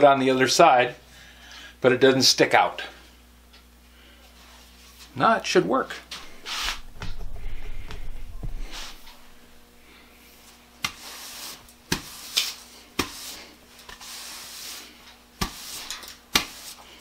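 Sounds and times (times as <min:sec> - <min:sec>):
broom bristles swishing on concrete: 0:06.4 - 0:06.9, 0:10.5 - 0:17.0.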